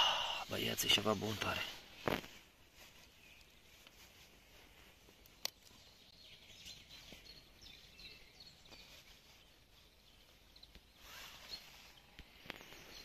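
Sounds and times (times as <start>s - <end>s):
faint bird chirps: 2.8s - 13.0s
hands crumbling damp groundbait: 5.0s - 5.8s.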